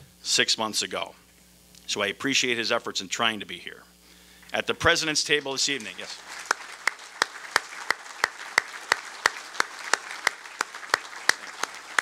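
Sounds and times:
crowd applause: 5.4s - 12.0s
person clapping close by: 5.4s - 12.0s.

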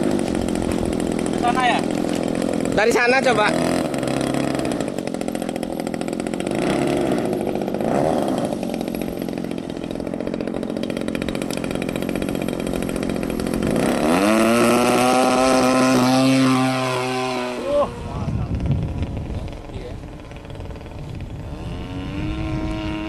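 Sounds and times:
model airplane engine: 0.0s - 23.0s.

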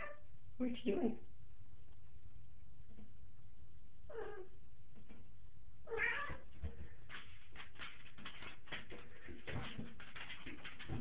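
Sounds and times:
cat meowing: 4.1s - 4.5s, 5.9s - 6.5s.

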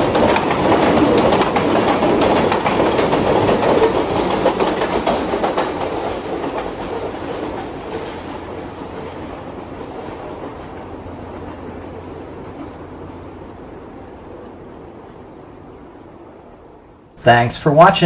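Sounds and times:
model train wheels clicking on rails: 0.0s - 8.2s.

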